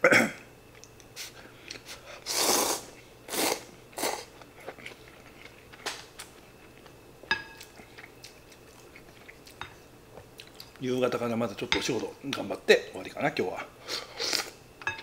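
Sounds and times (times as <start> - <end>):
chewing: 2.9 - 10.8.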